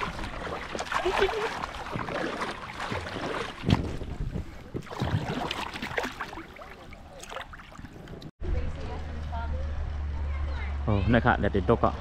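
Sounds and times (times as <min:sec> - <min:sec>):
water sloshing and splashing: 0:00.0 - 0:08.3
wind noise on microphone: 0:02.9 - 0:05.6.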